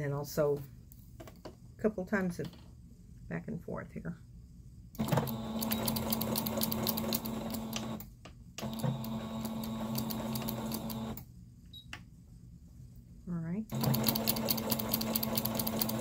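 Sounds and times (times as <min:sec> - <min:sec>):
electric sewing machine stitching: 0:05.0 - 0:08.0, 0:08.6 - 0:11.2, 0:13.7 - 0:16.0.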